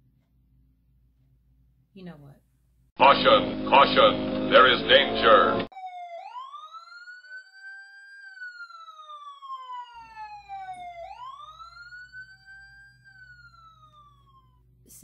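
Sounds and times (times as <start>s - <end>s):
wailing siren: 3.0s - 14.8s.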